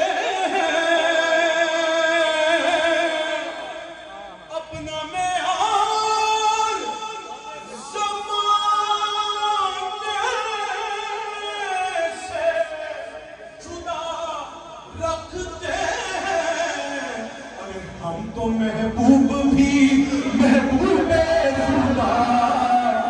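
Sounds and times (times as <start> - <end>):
person singing devotional verse: 4.6 - 23.0.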